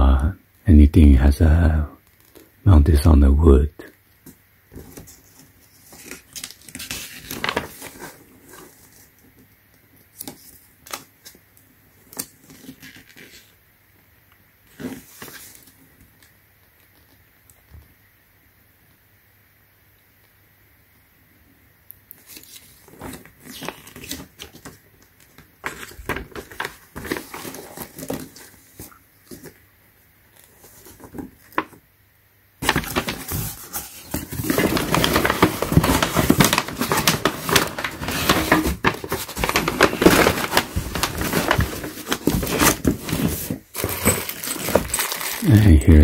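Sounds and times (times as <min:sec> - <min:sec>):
paper pages rustling: 0:04.2 - 0:11.4, 0:12.0 - 0:13.6, 0:14.7 - 0:17.1, 0:22.2 - 0:29.6, 0:30.3 - 0:31.8, 0:32.6 - 0:45.6
cardboard and packing paper scraping: 0:04.7 - 0:09.2, 0:14.7 - 0:15.8, 0:22.3 - 0:29.6, 0:30.4 - 0:31.8, 0:32.6 - 0:45.6.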